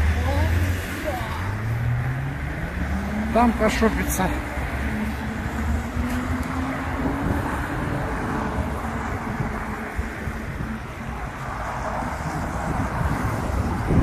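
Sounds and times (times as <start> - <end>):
road traffic passing: 0.0 - 14.0
vehicle humming: 0.0 - 14.0
wind rumbling on microphone: 4.6 - 14.0.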